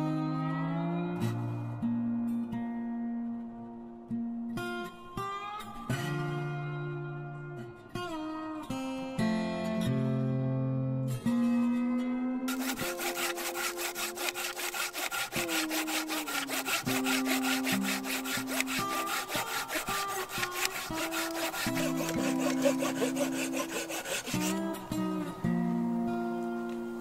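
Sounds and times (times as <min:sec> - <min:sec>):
fast rasping scrape: 0:12.5 - 0:24.6.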